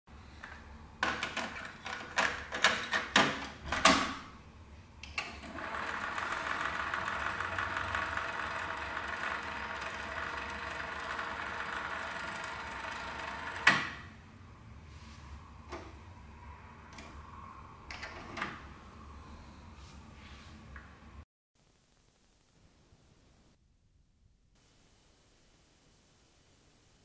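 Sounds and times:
tape rewinding motor whir: 5.4s - 14.0s.

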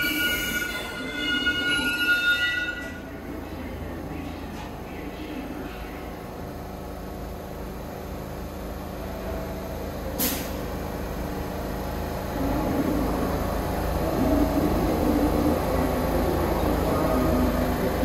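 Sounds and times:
subway train rumble: 0.0s - 18.0s
sharp hiss of air: 10.2s - 10.6s.

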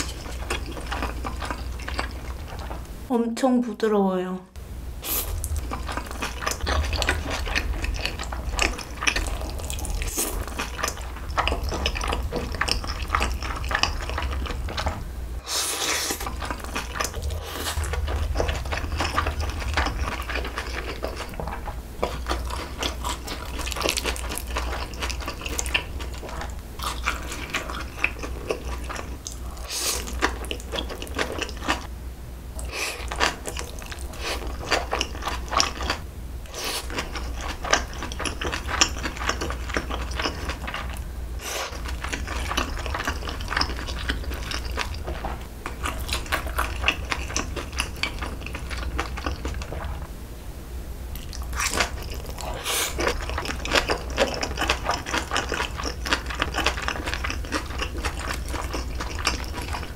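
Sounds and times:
chewing mouth noises: 0.0s - 2.9s, 5.1s - 31.9s, 32.6s - 50.0s, 51.1s - 59.9s
low hum: 0.0s - 32.7s
slurping noodles: 5.0s - 30.2s, 51.6s - 59.9s.

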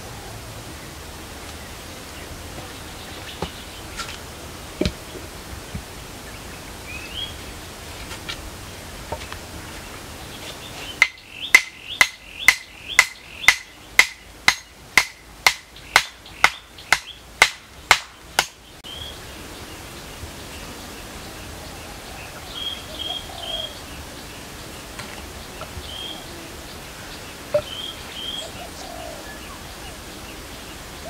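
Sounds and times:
bird chirp: 0.8s - 4.2s, 5.0s - 7.7s, 8.7s - 14.8s, 15.6s - 17.3s, 18.1s - 31.0s
wooden post being pounded: 4.8s - 5.9s, 11.0s - 18.6s.

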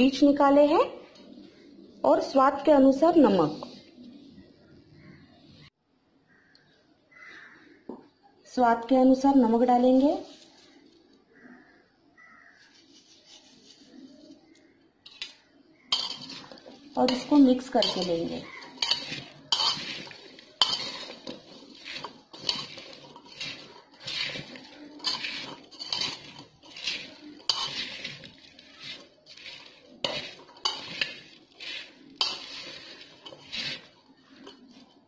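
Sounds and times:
spoon scraping metal pot: 15.1s - 35.0s.

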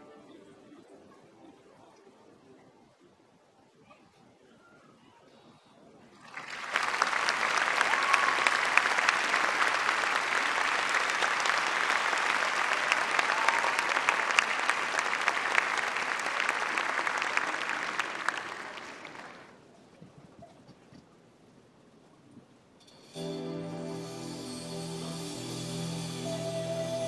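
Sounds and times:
large audience applauding: 6.2s - 19.6s.

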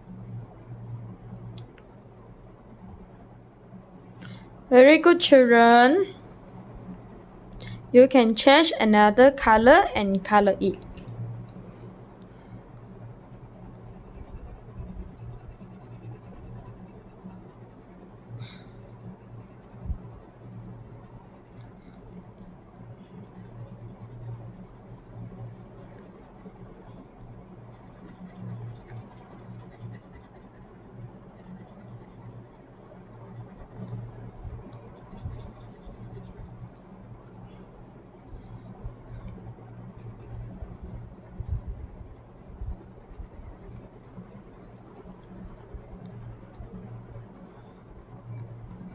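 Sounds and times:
low steady hum: 0.0s - 48.9s
pencil scratching on paper: 13.3s - 21.6s, 23.1s - 26.8s, 27.7s - 34.2s, 35.0s - 37.6s, 39.9s - 47.4s.

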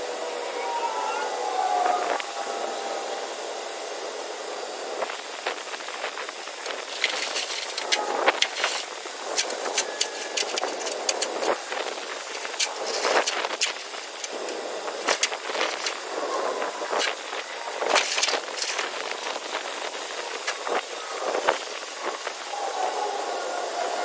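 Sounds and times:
brief falling whine: 0.0s - 4.1s
steady outdoor hiss: 0.0s - 24.0s.

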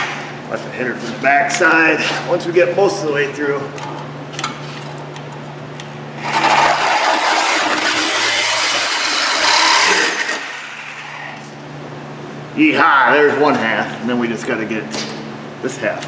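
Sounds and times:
power cutter slicing steel pipe: 6.2s - 10.9s.

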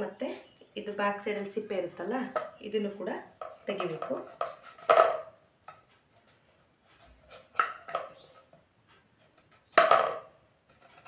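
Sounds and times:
knife cutting on wooden board: 3.4s - 5.2s, 7.0s - 8.2s.

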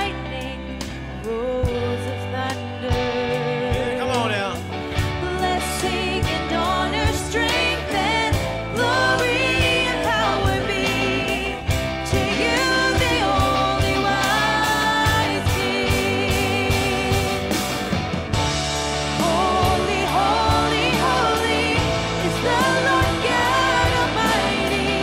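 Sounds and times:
band with steady bass line: 0.0s - 25.0s
person singing with vibrato: 5.1s - 17.7s, 19.0s - 25.0s.

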